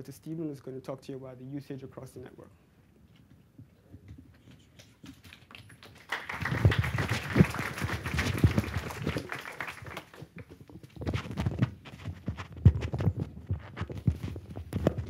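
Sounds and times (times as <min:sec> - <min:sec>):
rustling on microphone: 0:10.2 - 0:15.0
microphone handling knocks: 0:10.6 - 0:15.0.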